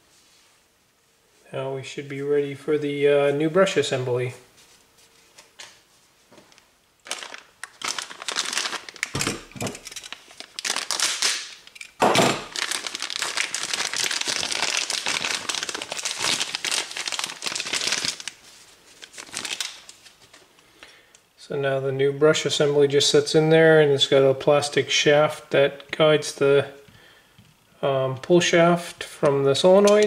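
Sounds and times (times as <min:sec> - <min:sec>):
plastic bag crinkling: 0:06.5 - 0:20.5.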